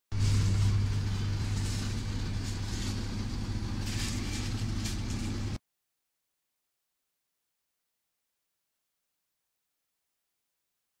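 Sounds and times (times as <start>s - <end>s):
steady low hum: 0.1s - 5.6s.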